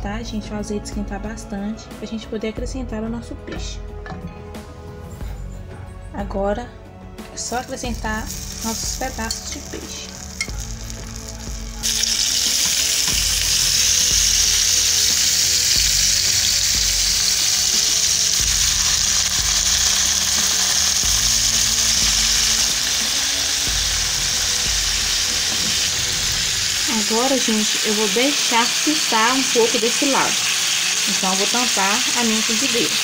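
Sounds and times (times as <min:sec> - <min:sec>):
fish sizzling in oil: 0:07.7 - 0:33.0.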